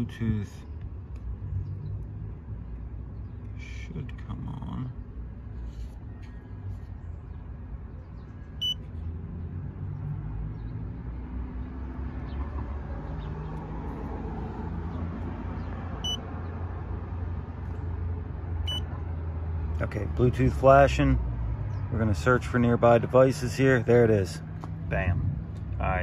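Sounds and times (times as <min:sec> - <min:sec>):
short high beeps: 0:08.6 - 0:08.8, 0:18.7 - 0:18.9.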